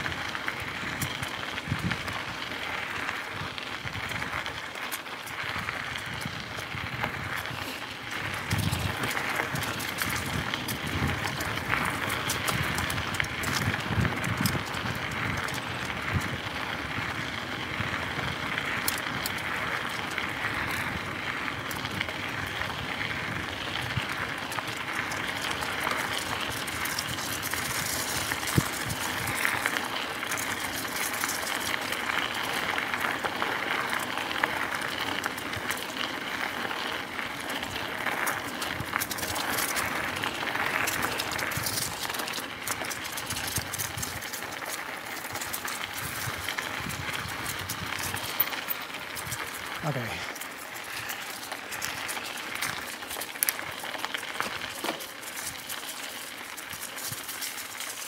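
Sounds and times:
bike clicking and rattling: 0:00.0 - 0:58.0
bike tyres rolling over dirt and leaves: 0:00.0 - 0:58.0.

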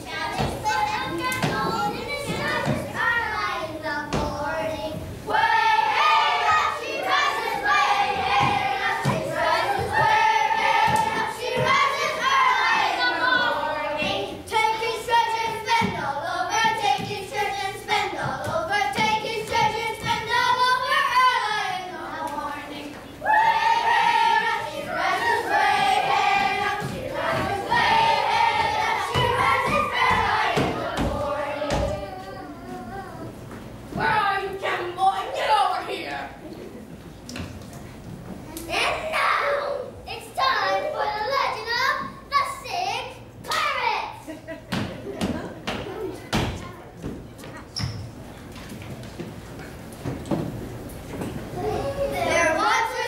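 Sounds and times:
children singing together: 0:00.0 - 0:33.4
heavy thumps on wooden stage: 0:08.1 - 0:11.9.

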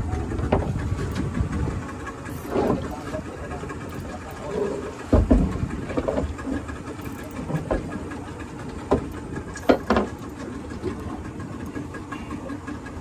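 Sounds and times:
boat engine running: 0:00.0 - 0:13.0
sharp knocks and thumps: 0:05.1 - 0:06.4, 0:08.9 - 0:10.2.

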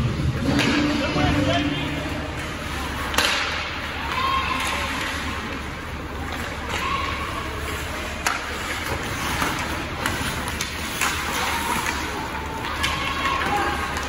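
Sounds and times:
low arena hum: 0:00.0 - 0:14.0
skates scraping on ice: 0:00.2 - 0:14.0
sticks and puck clicking: 0:08.2 - 0:14.0.

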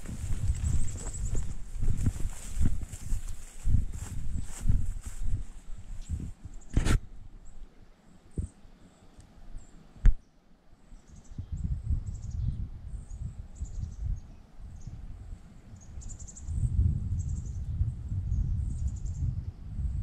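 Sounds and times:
wind rumble on microphone: 0:00.0 - 0:08.6, 0:11.0 - 0:20.0
faint high-pitched insect chirps: 0:10.8 - 0:15.0, 0:15.6 - 0:19.6.

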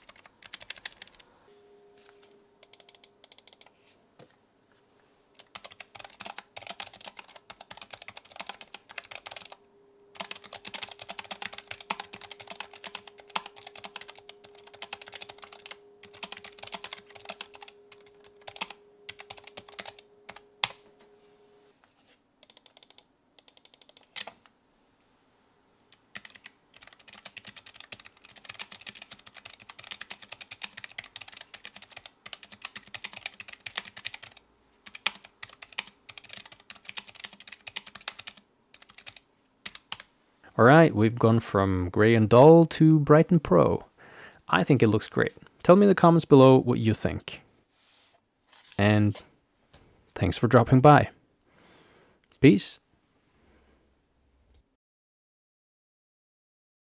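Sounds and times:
fast typing on mechanical keyboard: 0:00.0 - 0:01.2, 0:02.6 - 0:03.7, 0:05.4 - 0:09.6, 0:10.2 - 0:20.8, 0:22.4 - 0:24.4, 0:26.0 - 0:40.1.

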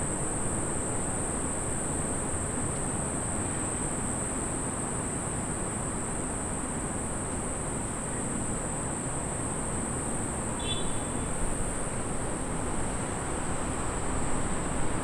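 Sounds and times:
high-pitched insect drone: 0:10.6 - 0:11.4.

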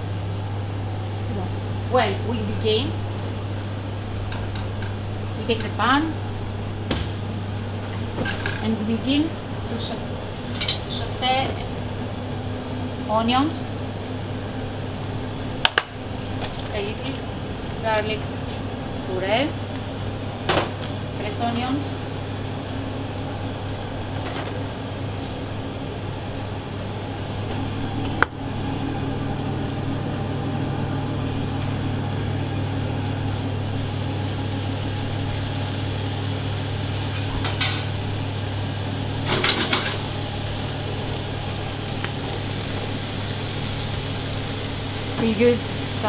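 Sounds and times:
kitchen ventilation hum: 0:00.0 - 0:46.0
onions sizzling in a frying pan: 0:33.2 - 0:46.0
pans and utensils clattering: 0:39.2 - 0:40.0.

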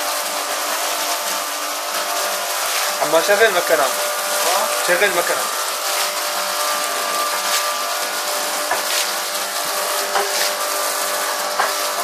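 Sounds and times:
cleaning machine motor hum: 0:00.0 - 0:12.0.

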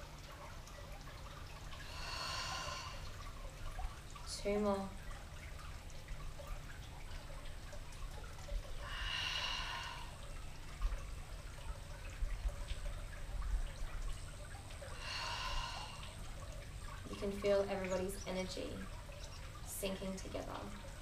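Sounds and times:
woman breathing deeply: 0:01.8 - 0:03.2, 0:08.8 - 0:10.2, 0:14.9 - 0:16.2.

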